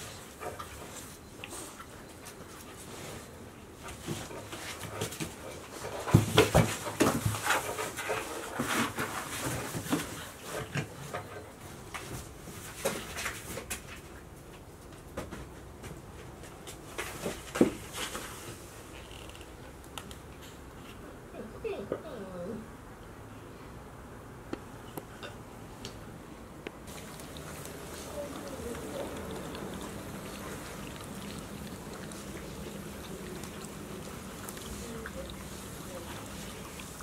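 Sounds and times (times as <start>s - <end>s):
puppies scuffling: 0.0s - 19.0s, 26.9s - 37.0s.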